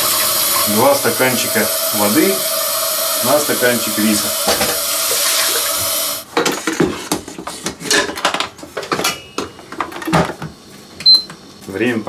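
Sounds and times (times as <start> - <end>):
running tap water: 0.0 - 6.2.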